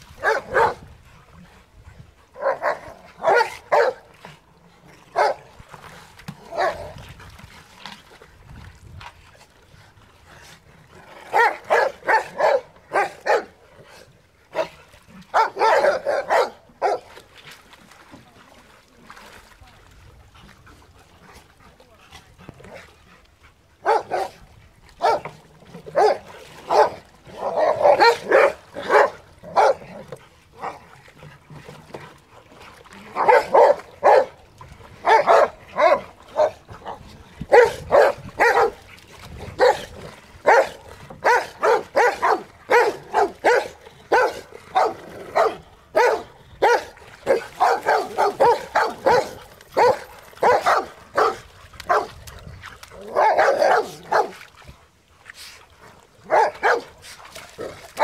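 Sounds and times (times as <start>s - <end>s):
dogs barking: 0.2s - 0.8s, 2.4s - 4.0s, 5.2s - 5.4s, 11.3s - 13.5s, 15.3s - 17.0s, 23.8s - 24.3s, 25.0s - 25.3s, 26.0s - 29.8s, 33.2s - 34.3s, 35.0s - 36.6s, 37.5s - 38.8s, 40.4s - 52.1s, 53.1s - 54.3s, 56.3s - 56.9s.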